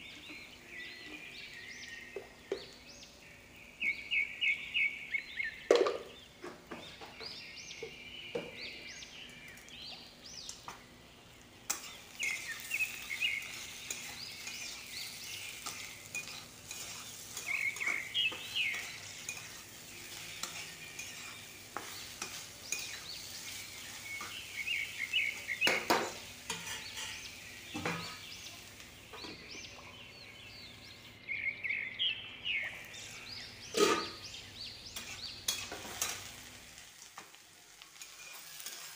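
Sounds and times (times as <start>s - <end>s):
oil sizzling: 0.0s - 31.1s, 32.4s - 38.9s
spatula stirring and scraping: 11.7s - 28.3s, 32.9s - 36.4s, 37.9s - 38.9s.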